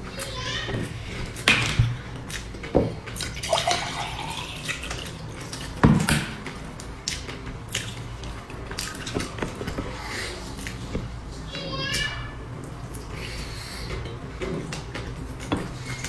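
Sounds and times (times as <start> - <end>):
wet chewing and lip-smacking: 2.2 - 3.5, 6.6 - 10.9.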